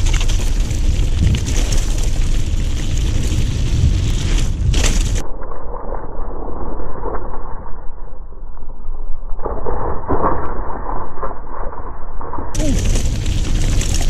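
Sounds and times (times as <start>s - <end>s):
tyres rolling over gravel: 0.0s - 5.2s, 12.6s - 14.0s
wind on microphone: 0.0s - 5.2s.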